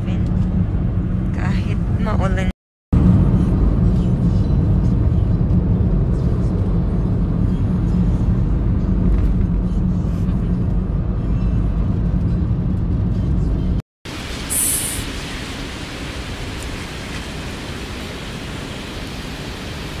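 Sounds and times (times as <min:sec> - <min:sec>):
car road and engine rumble: 0:00.0 - 0:20.0
brief hiss: 0:14.3 - 0:15.3.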